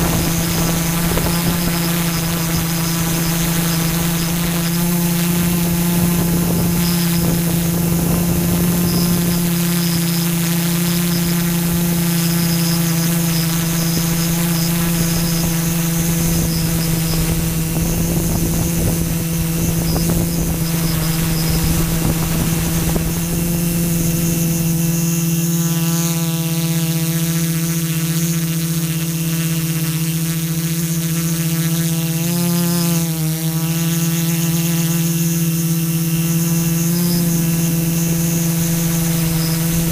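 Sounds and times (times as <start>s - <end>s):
wind rumbling on microphone: 0.0s - 25.3s, 37.3s - 39.9s
drone propellers whining: 0.0s - 25.7s, 35.0s - 39.9s.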